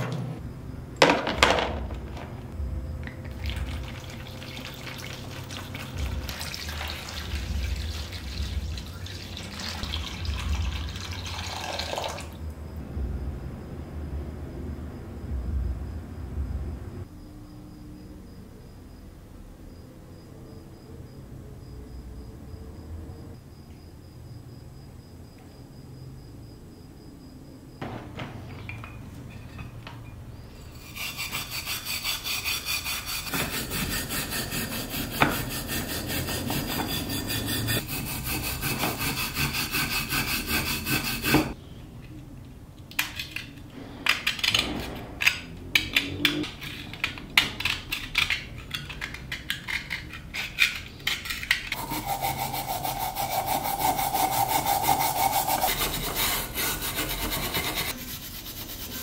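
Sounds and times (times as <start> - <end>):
stiff brush scrubbing metal: 30.6 - 41.6, 50.3 - 59.0.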